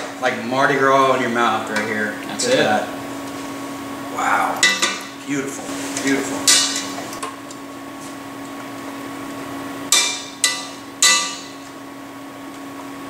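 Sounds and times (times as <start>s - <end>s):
steady background hum: 0.0s - 13.0s
metal tongs clanking on pot: 4.6s - 5.0s, 6.5s - 6.9s, 9.9s - 11.6s.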